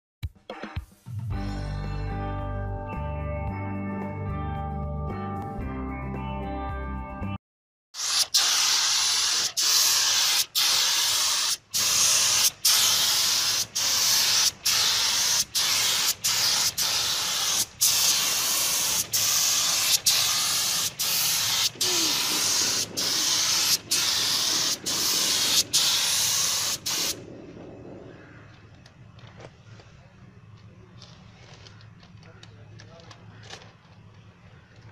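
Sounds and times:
spray gun hissing: 8.0 - 27.3.

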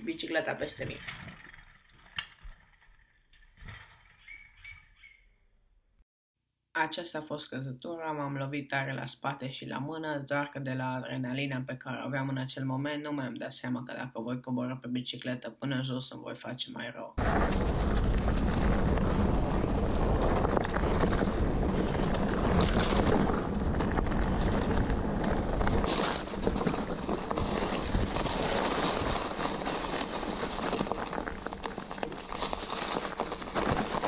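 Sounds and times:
wind buffeting microphone: 17.2 - 25.9
bike knocks and rattles: 17.2 - 28.5.

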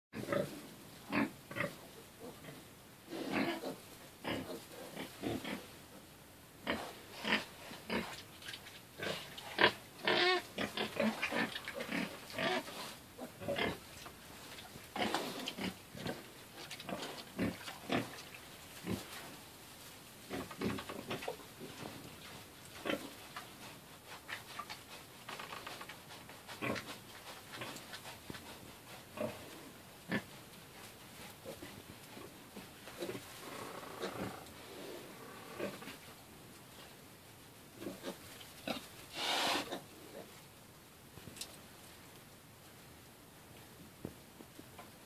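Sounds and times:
boar and piglets grunting and squealing: 0.2 - 6.0, 6.6 - 14.0, 14.9 - 19.3, 20.2 - 25.8, 26.4 - 30.5, 31.2 - 36.1, 37.8 - 40.4.

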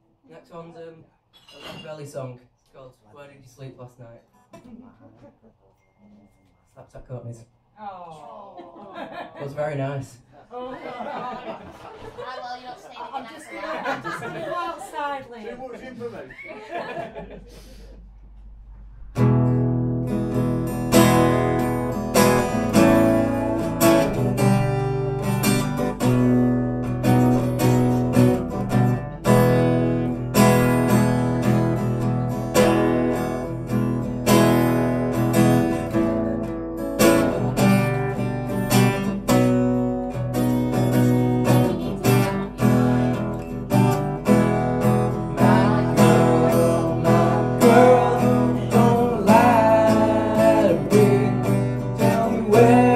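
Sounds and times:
acoustic guitar strumming: 18.6 - 52.9.

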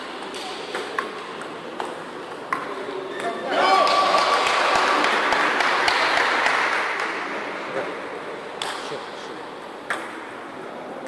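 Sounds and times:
spectators applauding: 3.6 - 7.4.

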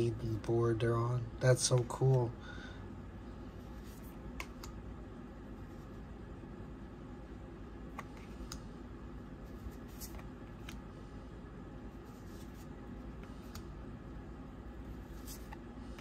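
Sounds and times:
low room noise: 0.0 - 16.0
cards clicking while handled: 4.4 - 4.8.

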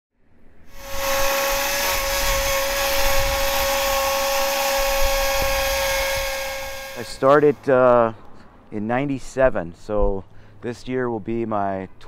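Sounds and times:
chainsaw running: 0.7 - 7.6.

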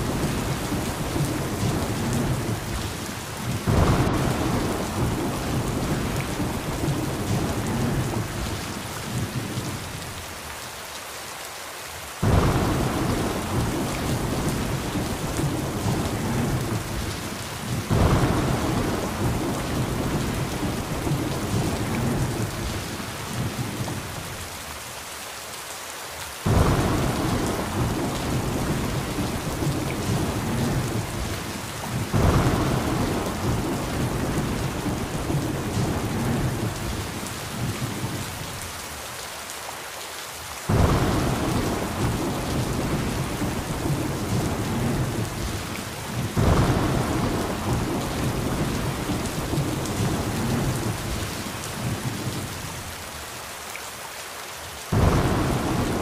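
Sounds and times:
steady rain: 0.0 - 56.0
thunder rumbling: 3.5 - 9.6, 12.2 - 24.2, 26.5 - 38.3, 40.7 - 52.5, 54.9 - 56.0.

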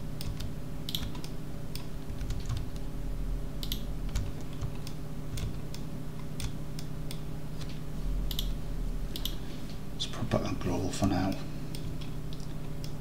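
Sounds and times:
steady low hum: 0.0 - 13.0
keyboard and mouse clicking: 0.2 - 2.8, 3.6 - 9.4, 11.7 - 13.0.

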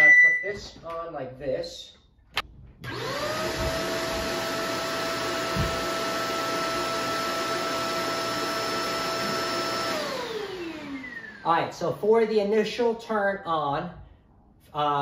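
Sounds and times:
vacuum cleaner motor whine: 2.8 - 12.0.

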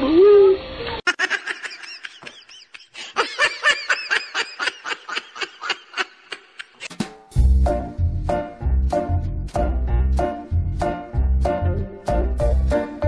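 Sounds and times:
person giggling: 1.1 - 6.9
bouncy music: 6.9 - 13.0.

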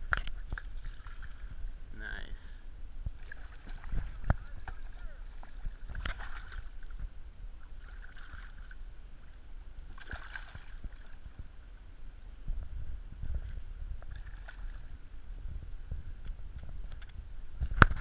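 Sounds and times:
fish splashing in water: 3.2 - 7.0, 7.7 - 8.8, 9.9 - 11.3, 14.0 - 15.0.

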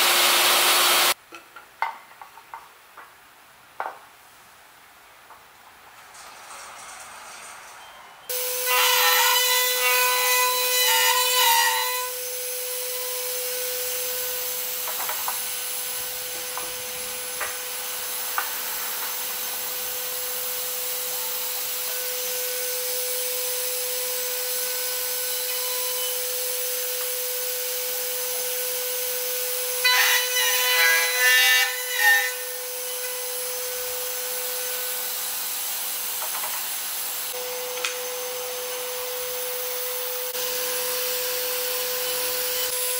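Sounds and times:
router spindle whining: 0.0 - 1.2.

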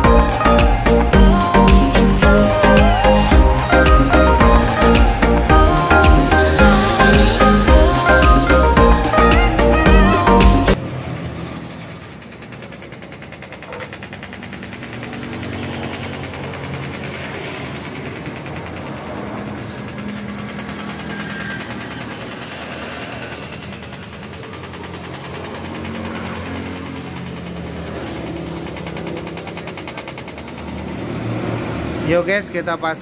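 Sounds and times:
low droning hum: 0.0 - 10.7
welding arc buzzing: 0.0 - 10.8.

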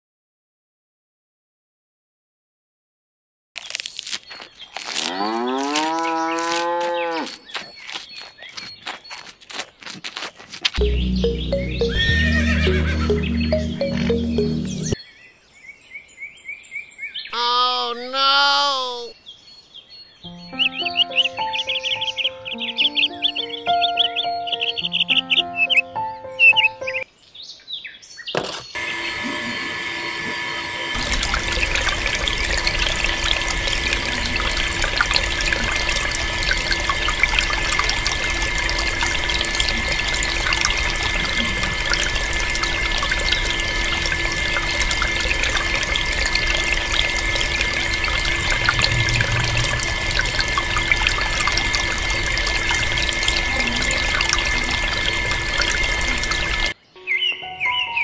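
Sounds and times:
water pump motor whine: 10.8 - 15.0, 28.8 - 56.8
water pouring into pool: 30.9 - 56.8.

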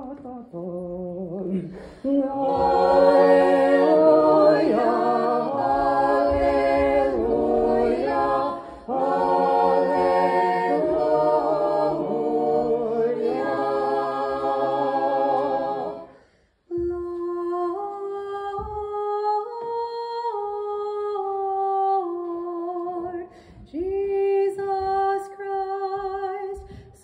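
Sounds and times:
church choir singing a cappella: 0.3 - 27.0
chant on held notes: 2.1 - 16.2.

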